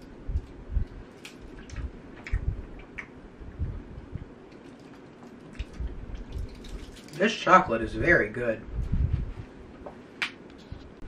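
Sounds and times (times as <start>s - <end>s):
foil wrapper rustling: 4.6s - 7.5s
soft low thumps: 8.7s - 10.0s.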